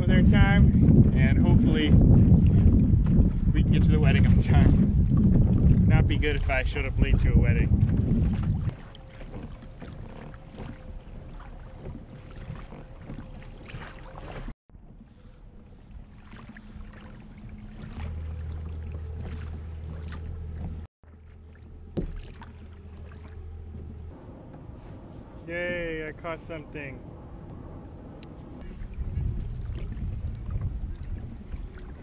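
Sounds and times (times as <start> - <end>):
light wind on microphone: 0.0 - 20.9, 22.0 - 32.0
water lapping at hull: 0.0 - 32.0
low steady drone: 14.8 - 32.0.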